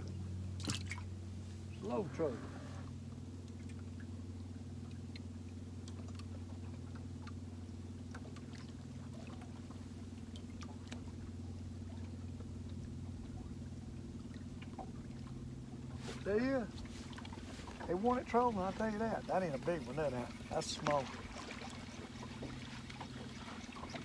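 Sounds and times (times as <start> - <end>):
boat motor humming: 0.0 - 24.0
faint ticks: 4.8 - 7.4.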